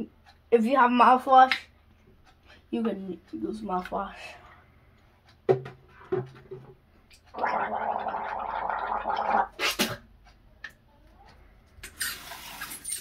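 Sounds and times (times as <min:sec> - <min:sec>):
boy gargling: 0:07.3 - 0:09.7
spitting into sink: 0:07.3 - 0:10.0.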